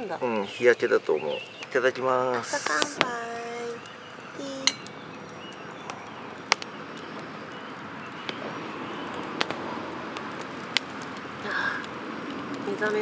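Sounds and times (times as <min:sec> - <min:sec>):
outdoor background hiss: 0:00.0 - 0:13.0.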